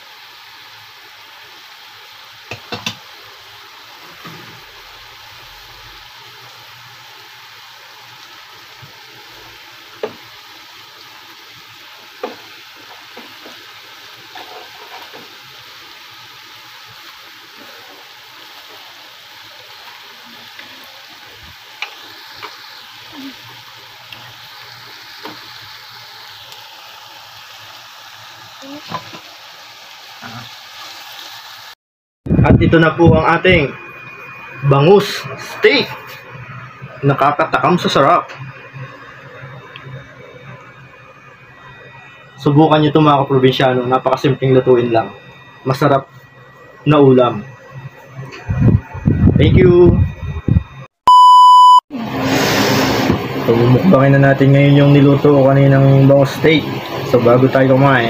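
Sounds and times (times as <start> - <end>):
fish frying in sauce: 0.0 - 31.8, 52.0 - 58.0.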